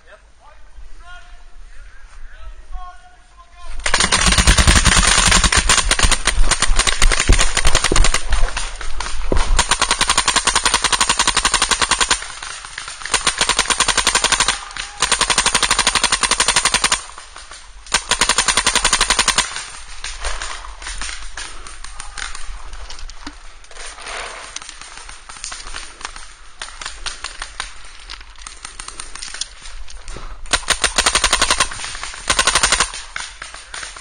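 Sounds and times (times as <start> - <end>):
paintball markers firing: 3.8 - 17.1.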